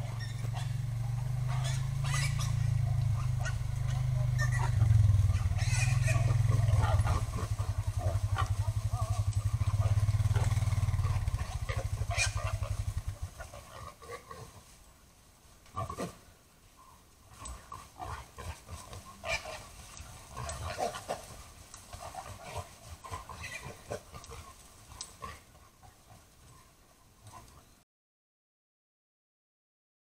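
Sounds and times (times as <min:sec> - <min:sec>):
hogs grunting: 0:00.0 - 0:14.6, 0:17.3 - 0:26.6
rustling: 0:00.0 - 0:27.8
high-pitched squeals: 0:01.4 - 0:06.5.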